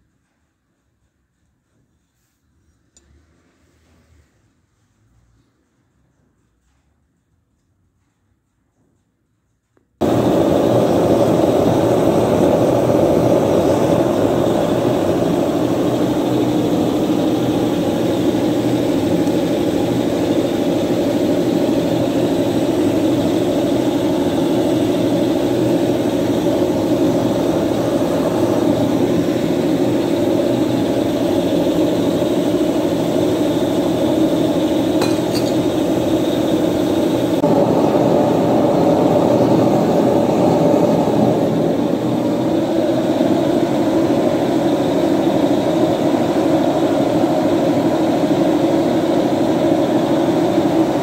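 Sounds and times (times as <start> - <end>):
gas forge burner rushing: 10.0 - 51.0.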